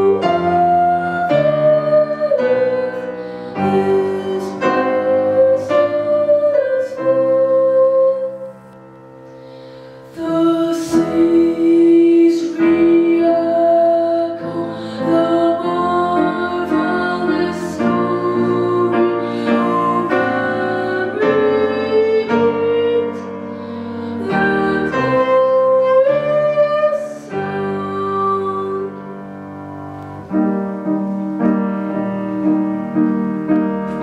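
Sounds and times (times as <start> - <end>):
boy singing a hymn: 0.0 - 8.6, 10.1 - 29.1
grand piano accompaniment: 0.0 - 34.0.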